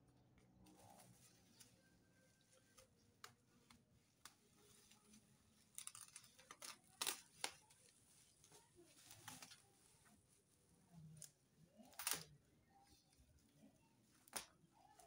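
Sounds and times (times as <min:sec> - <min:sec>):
bubble wrap crackling: 0:00.6 - 0:15.0
scissors snipping: 0:05.8 - 0:07.6.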